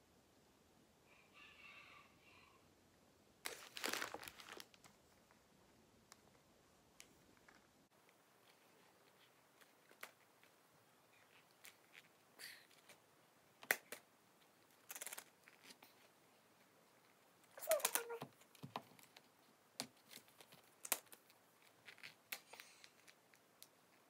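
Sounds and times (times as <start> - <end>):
plastic crackling clatter: 3.5 - 5.0, 14.7 - 16.1.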